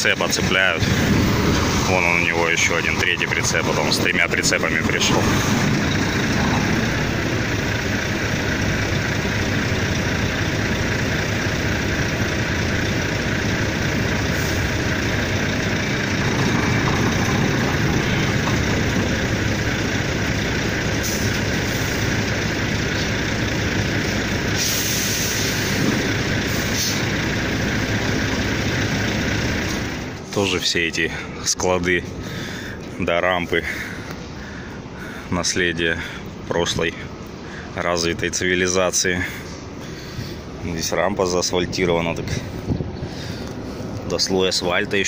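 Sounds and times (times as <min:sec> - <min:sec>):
diesel truck idling: 0:00.0 - 0:45.0
air brake hisses: 0:21.0 - 0:22.0, 0:24.6 - 0:25.9, 0:26.5 - 0:27.1.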